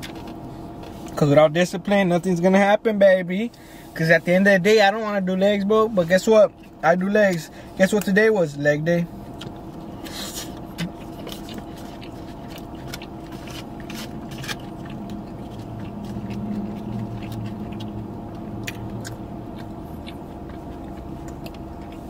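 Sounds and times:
steady low hum: 0:00.0 - 0:22.0
person chewing food: 0:06.4 - 0:06.8, 0:09.2 - 0:22.0.

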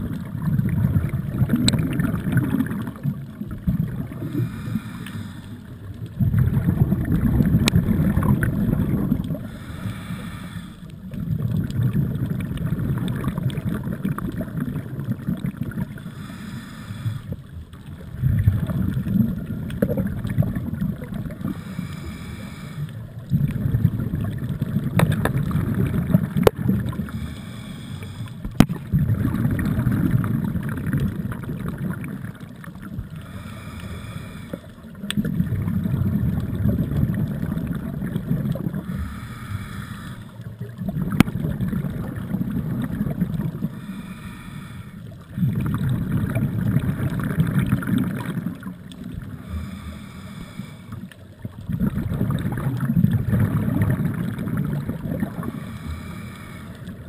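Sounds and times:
exhaled bubbles underwater: 0:00.0 - 0:57.0
regulator inhale hiss: 0:04.1 - 0:05.8, 0:09.4 - 0:11.1, 0:16.0 - 0:17.6, 0:21.4 - 0:23.1, 0:26.9 - 0:28.6, 0:33.1 - 0:34.8, 0:38.7 - 0:40.5, 0:43.6 - 0:45.2, 0:49.2 - 0:51.2, 0:55.3 - 0:57.0.

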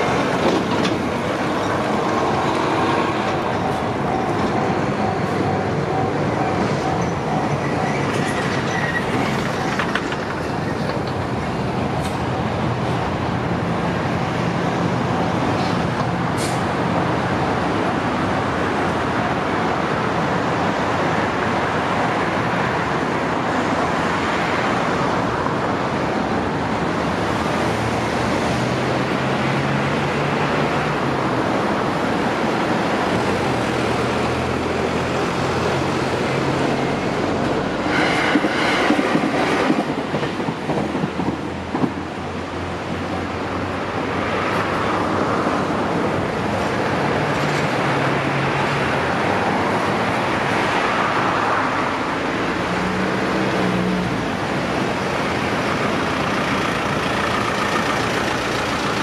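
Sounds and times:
train wheels clattering on rails: 0:00.0 - 0:13.1, 0:34.9 - 0:42.3.

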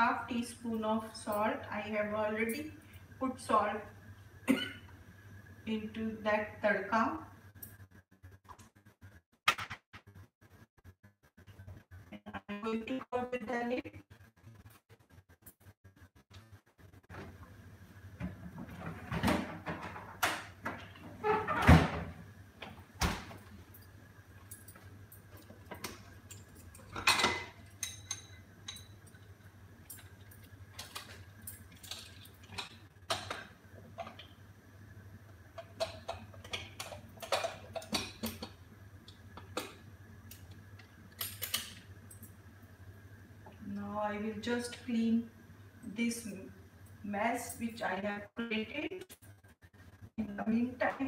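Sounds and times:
metal pots and lids clinking: 0:25.7 - 0:29.2, 0:35.6 - 0:38.6.

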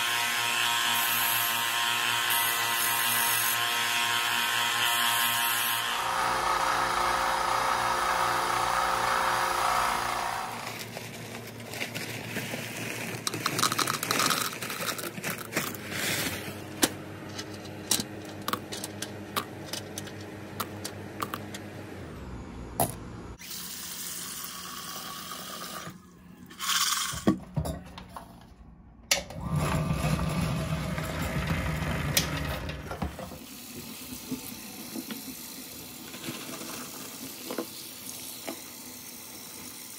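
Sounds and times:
belt and disc sander running: 0:05.9 - 0:10.9
small media rattling in plastic cup: 0:12.2 - 0:15.8.

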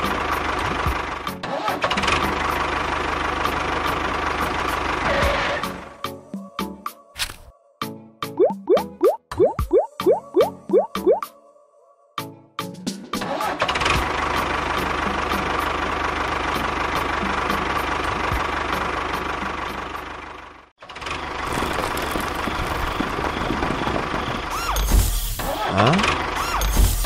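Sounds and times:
tractor engine running: 0:00.0 - 0:05.1, 0:13.6 - 0:27.0.

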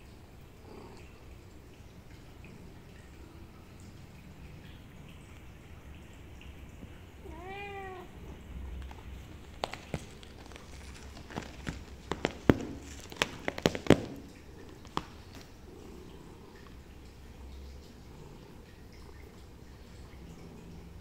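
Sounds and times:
cat meowing: 0:07.2 - 0:08.2
sharp taps and knocks: 0:08.8 - 0:15.5.

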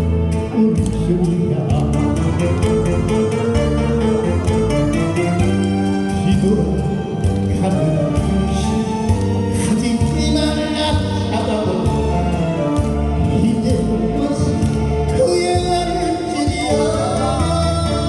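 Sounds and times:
man singing into a microphone: 0:00.4 - 0:02.6, 0:06.2 - 0:18.0.

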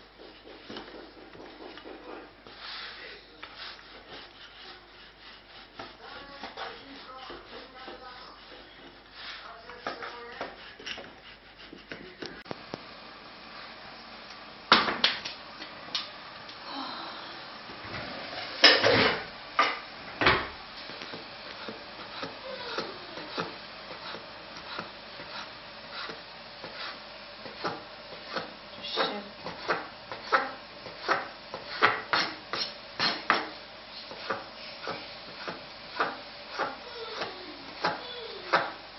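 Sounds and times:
rolling pin rubbing over dough: 0:00.0 - 0:12.5, 0:20.8 - 0:38.8.

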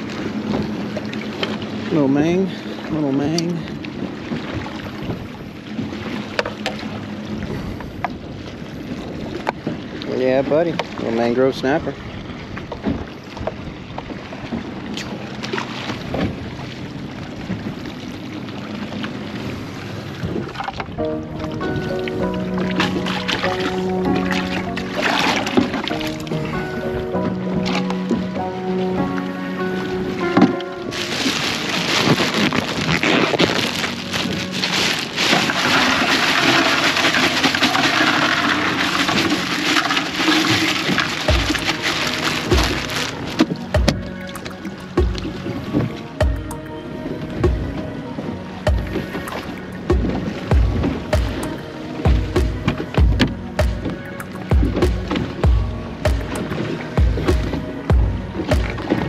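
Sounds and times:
water slapping against hull: 0:00.0 - 0:59.0
wind on microphone: 0:03.3 - 0:11.1, 0:15.8 - 0:28.3, 0:30.0 - 0:59.0
plastic bag crinkling: 0:31.0 - 0:43.3
ice cubes rattling into bucket: 0:34.7 - 0:43.1.

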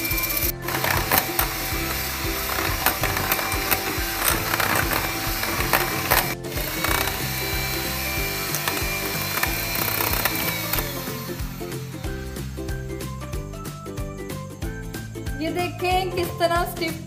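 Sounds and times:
beaters clicking against bowl: 0:00.0 - 0:10.9
hand mixer motor whining: 0:00.0 - 0:12.4
background music: 0:00.0 - 0:17.0.

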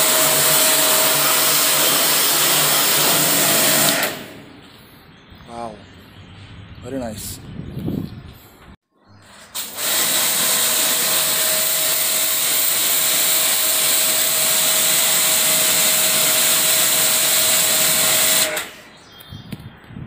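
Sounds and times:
pressure washer spraying water: 0:00.0 - 0:04.6, 0:09.5 - 0:18.9.

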